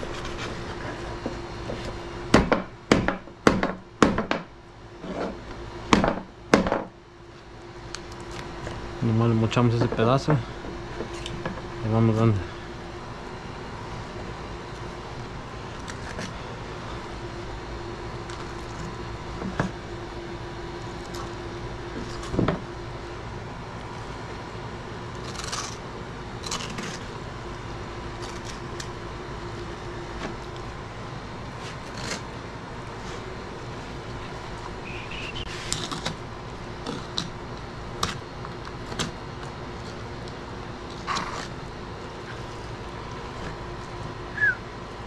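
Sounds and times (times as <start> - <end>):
knife scraping scaly hide: 0.0 - 1.2, 25.1 - 25.8, 31.5 - 32.4, 34.8 - 36.2, 41.0 - 41.6
steady low hum: 0.0 - 45.0.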